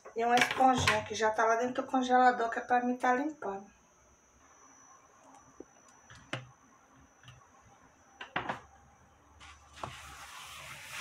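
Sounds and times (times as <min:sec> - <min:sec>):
sponge scrubbing: 0:09.4 - 0:11.0.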